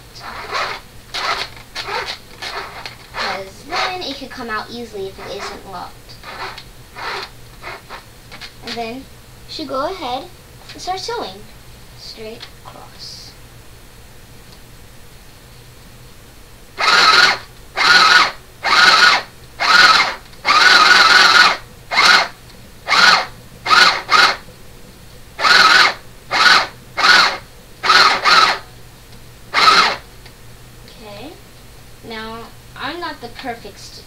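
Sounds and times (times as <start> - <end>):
sewing machine stitching: 0.2 - 4.0, 6.2 - 8.0, 16.8 - 22.3, 22.9 - 24.4, 25.4 - 28.6, 29.6 - 30.0.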